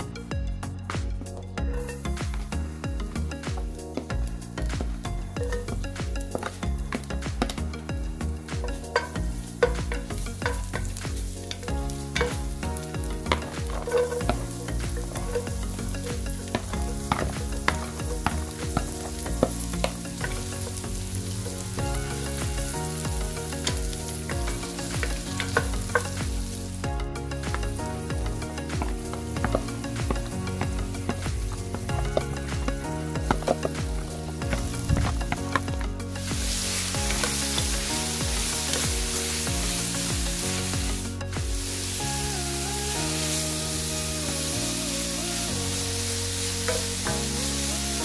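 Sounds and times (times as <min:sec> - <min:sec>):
food sizzling in hot oil: 0:01.7 - 0:48.0
wooden spatula clicking and scraping: 0:03.5 - 0:40.4.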